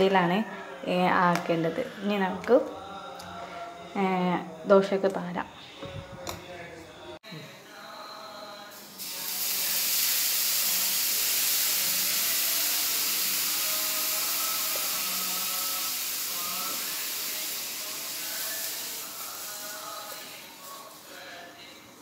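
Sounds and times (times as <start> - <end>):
water sizzling on hot pan: 8.7 - 21.4.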